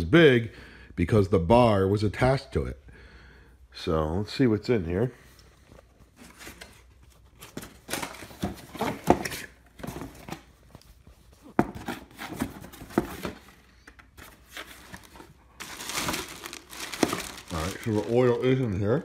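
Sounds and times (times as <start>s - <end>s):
cardboard rustling and scraping: 5.8s - 19.0s.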